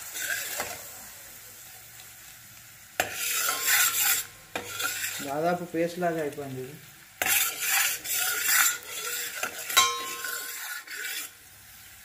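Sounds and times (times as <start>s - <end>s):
spoon scraping steel bowl: 0.1s - 0.8s, 3.0s - 5.3s, 7.2s - 11.4s
sharp metal clink: 9.8s - 10.4s.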